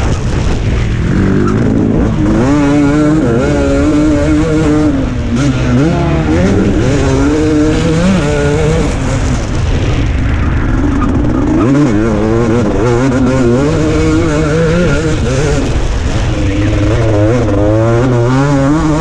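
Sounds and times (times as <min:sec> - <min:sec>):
motocross engine revving: 0:00.0 - 0:10.0, 0:10.7 - 0:19.0.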